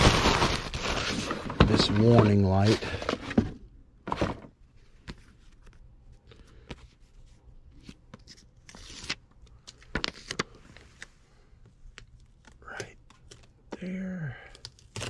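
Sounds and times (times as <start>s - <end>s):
paper handling: 0.0s - 3.2s, 4.9s - 11.1s.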